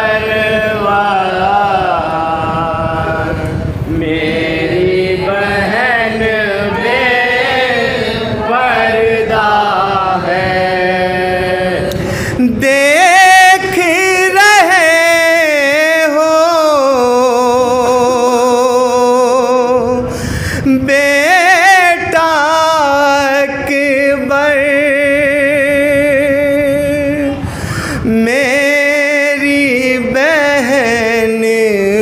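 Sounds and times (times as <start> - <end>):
man singing a mourning lament: 0.0 - 7.4, 8.3 - 32.0.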